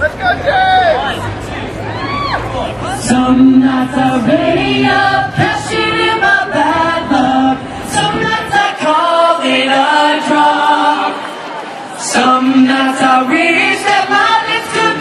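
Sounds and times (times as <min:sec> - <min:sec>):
group singing a cappella: 0:03.0 - 0:15.0.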